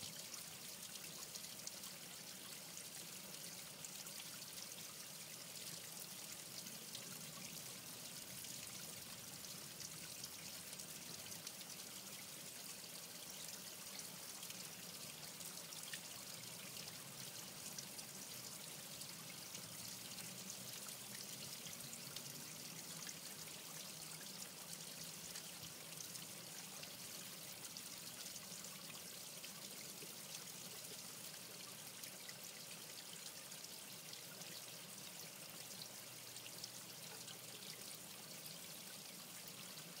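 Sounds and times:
water trickling: 0.0s - 40.0s.

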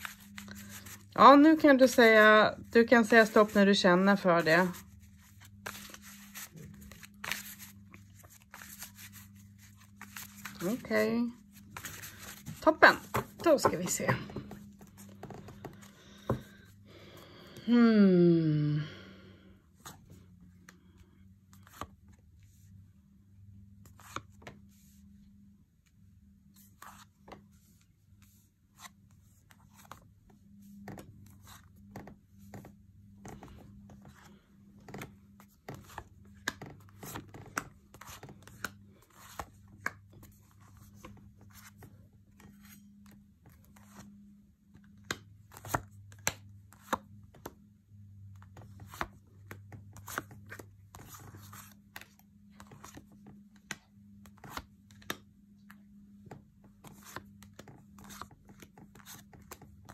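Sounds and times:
cards being shuffled: 0.0s - 16.7s, 30.8s - 44.1s, 44.8s - 47.5s, 48.4s - 55.8s, 56.8s - 59.9s
low steady hum: 0.0s - 59.9s.

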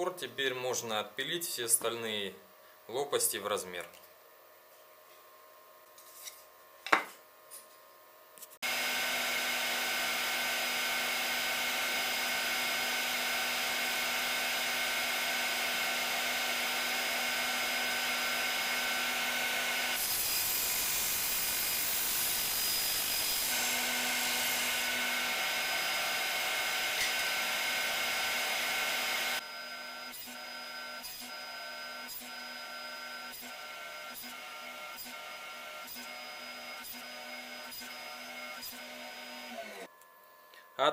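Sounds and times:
power saw whining: 8.6s - 39.9s
saw cutting through plywood: 8.6s - 39.9s.

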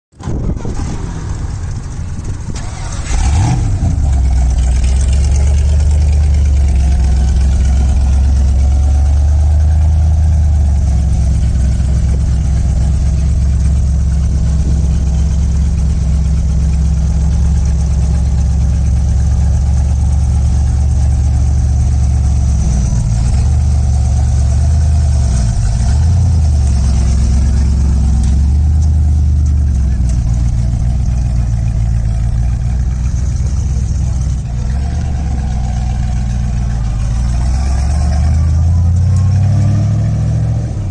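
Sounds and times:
loud engine idling and revving: 0.1s - 40.9s.

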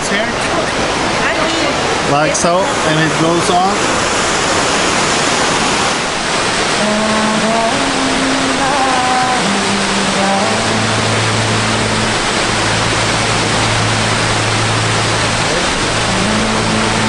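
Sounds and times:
waterfall roaring: 0.0s - 17.0s
low steady musical note: 6.8s - 17.0s.

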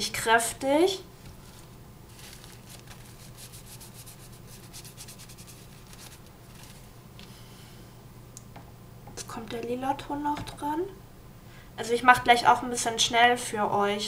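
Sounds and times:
low electrical hum: 0.0s - 14.0s
fingertip rubbing skin: 2.4s - 6.8s.

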